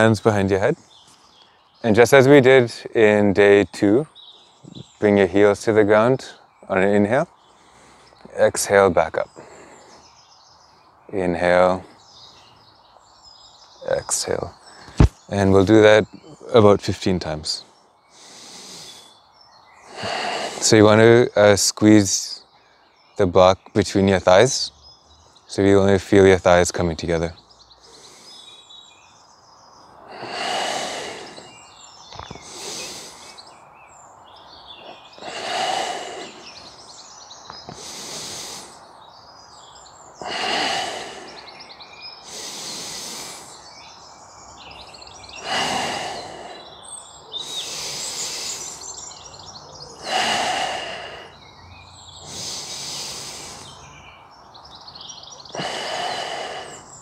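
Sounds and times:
birds chirping faintly: 0:00.0 - 0:57.0
person breathing deeply: 0:09.3 - 0:10.1, 0:18.1 - 0:19.2, 0:19.8 - 0:20.7, 0:27.8 - 0:28.7, 0:30.0 - 0:33.6, 0:34.8 - 0:36.9, 0:37.7 - 0:38.9, 0:40.2 - 0:43.9, 0:45.2 - 0:49.3, 0:50.0 - 0:54.1, 0:55.4 - 0:57.0.

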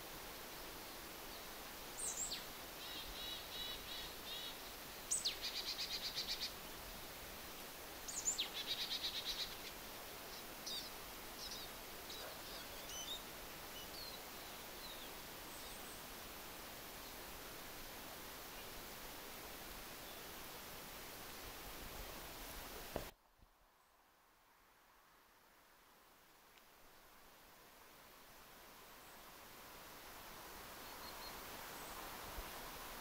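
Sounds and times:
songbird singing with trill: 0:02.0 - 0:06.6, 0:08.1 - 0:09.7, 0:10.3 - 0:16.0
soft bird chirps: 0:08.1 - 0:16.1, 0:30.8 - 0:32.1.

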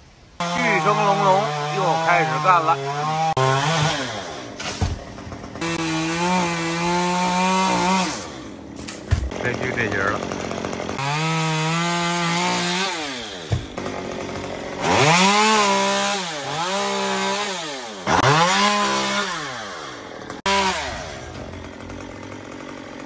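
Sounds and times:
chainsaw cutting wood: 0:00.4 - 0:23.0.

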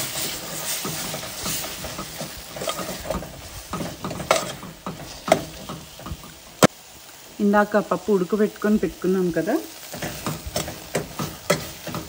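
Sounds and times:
faint sizzle: 0:00.0 - 0:12.0
spoon knocking on pot: 0:10.0 - 0:12.0.

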